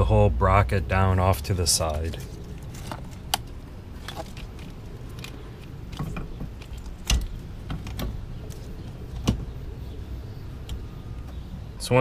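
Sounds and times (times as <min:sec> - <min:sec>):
light clicks and knocks of parts: 0:01.8 - 0:09.5.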